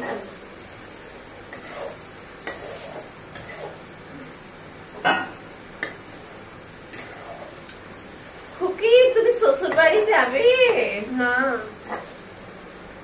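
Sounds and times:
spatula scraping a pan: 0.0s - 0.4s, 1.0s - 4.0s, 5.8s - 7.7s, 11.7s - 12.3s
frying sizzle: 0.0s - 13.0s.

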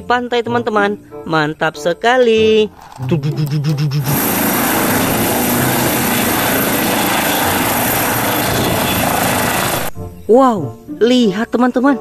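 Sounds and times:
helicopter hovering: 2.7s - 10.0s.

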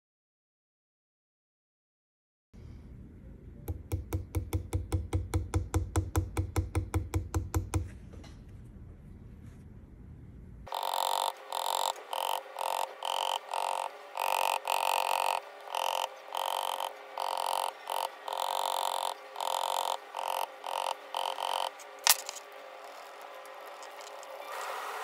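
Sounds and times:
even ticks: 10.7s - 21.8s
metal tool rubbing metal: 10.7s - 24.4s.

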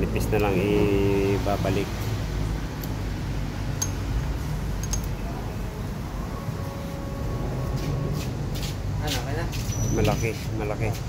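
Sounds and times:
light metallic clinks: 3.8s - 4.2s, 4.8s - 5.2s.

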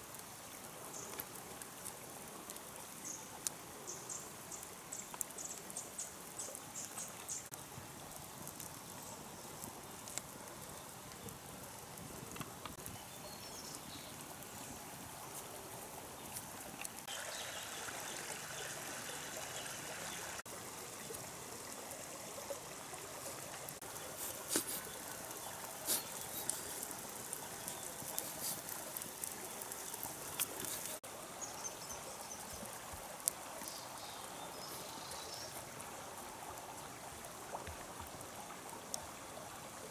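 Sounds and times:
stream trickling: 0.0s - 39.9s.

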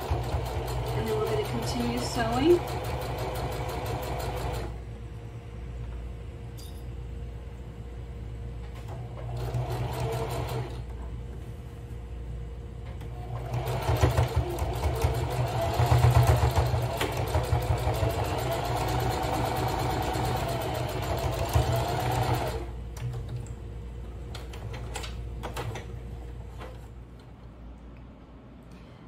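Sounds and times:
sewing machine stitching: 0.0s - 4.7s, 9.2s - 10.8s, 13.1s - 22.7s.

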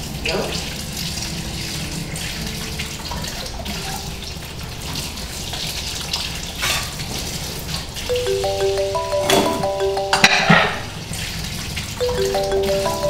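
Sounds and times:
dishes being washed: 1.3s - 10.9s.

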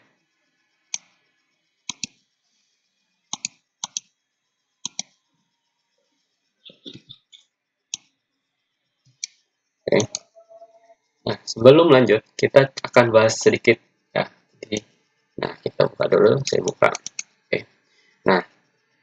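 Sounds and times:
computer mouse clicks: 0.9s - 1.2s, 1.9s - 2.2s, 3.3s - 4.1s, 4.8s - 5.2s, 6.8s - 8.1s, 9.1s - 10.3s, 16.6s - 17.4s.

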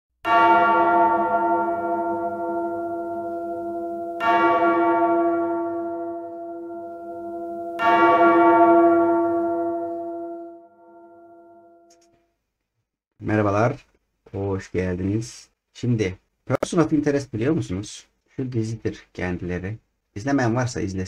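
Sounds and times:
deep bell ringing: 0.3s - 11.9s.

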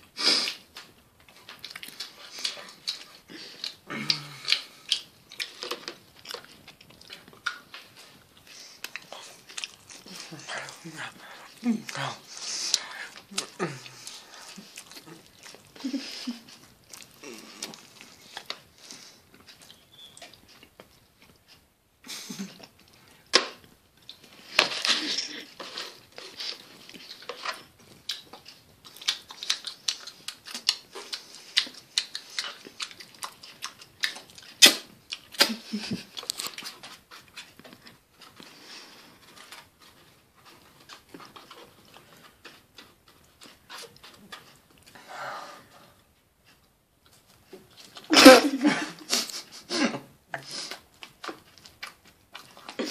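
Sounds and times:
person snarling and grunting: 3.9s - 4.6s, 10.1s - 14.4s
wet mouth smacking: 28.9s - 37.5s.

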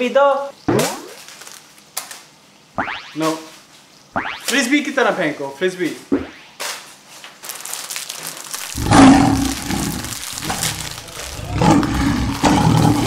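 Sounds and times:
man roaring yell: 10.4s - 13.0s.

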